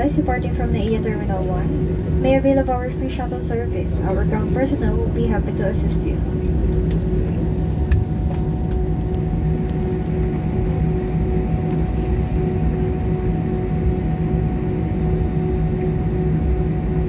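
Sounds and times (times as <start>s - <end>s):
cabin low rumble: 0.0s - 17.0s
jet engines humming: 0.0s - 17.0s.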